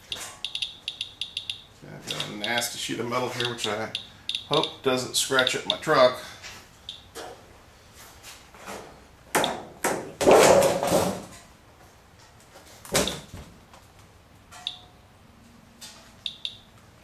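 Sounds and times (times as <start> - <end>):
geiger counter chirps: 0.0 - 2.7, 3.4 - 4.8, 16.2 - 16.7.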